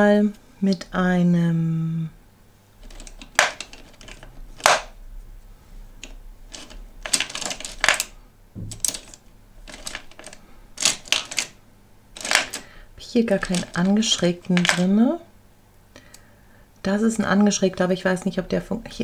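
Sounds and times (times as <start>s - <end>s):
make-up brushes clattering: 2.8s - 5.0s, 6.0s - 11.6s, 12.2s - 12.7s, 13.3s - 15.0s.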